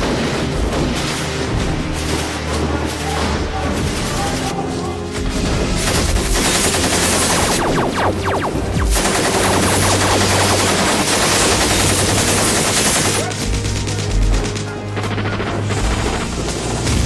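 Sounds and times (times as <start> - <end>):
background music: 0.0 - 17.0
rapid automatic gunfire: 5.2 - 17.0.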